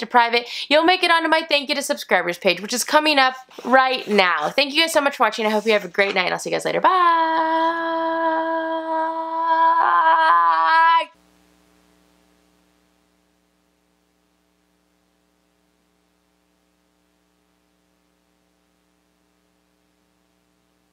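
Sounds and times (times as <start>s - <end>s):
faint electrical hum: 0.0s - 20.9s
woman singing high note: 6.9s - 11.2s.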